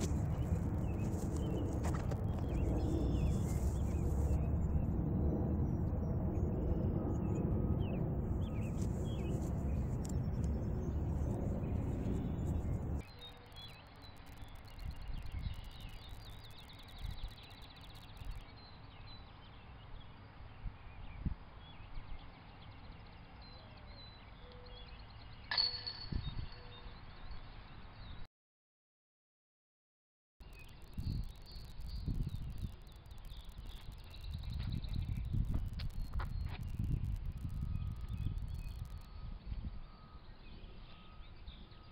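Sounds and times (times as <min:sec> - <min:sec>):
wind rumbling on microphone: 0:00.0 - 0:13.2, 0:14.2 - 0:18.6, 0:20.5 - 0:22.3, 0:26.0 - 0:26.6, 0:30.4 - 0:40.8
small birds chirping faintly: 0:05.6 - 0:25.6, 0:30.4 - 0:41.9.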